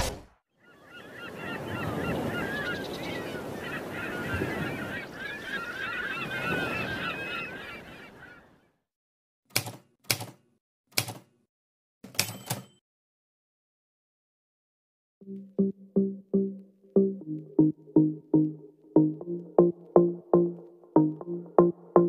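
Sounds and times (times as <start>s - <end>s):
flock of birds honking: 0.6s - 8.7s.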